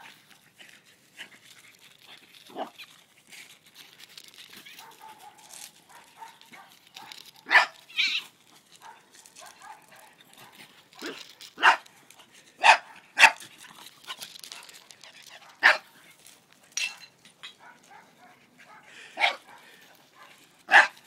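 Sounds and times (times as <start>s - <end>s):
dog barking: 4.8s - 7.8s, 8.8s - 11.8s, 12.6s - 13.4s, 15.4s - 15.9s, 17.6s - 21.0s.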